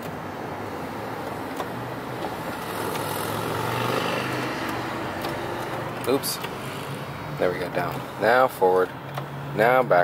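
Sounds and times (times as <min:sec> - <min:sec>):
power seat motor humming: 0:01.1 - 0:07.0.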